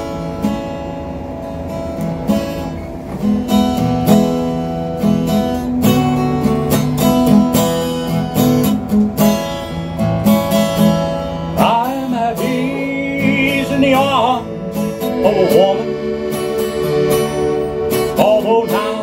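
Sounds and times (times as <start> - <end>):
accordion holding chords: 0.0 - 19.0
acoustic guitar strumming: 0.0 - 19.0
man singing: 11.6 - 16.0, 18.1 - 19.0.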